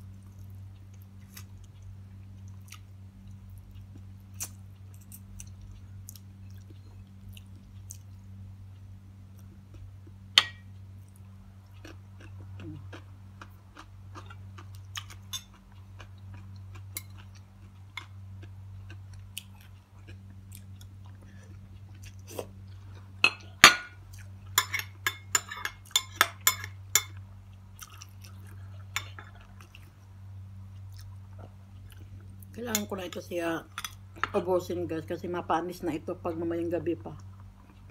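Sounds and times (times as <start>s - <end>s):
steady low hum: 0.0s - 37.9s
chewing: 0.1s - 8.4s, 11.0s - 23.2s, 26.6s - 30.0s, 30.6s - 32.6s.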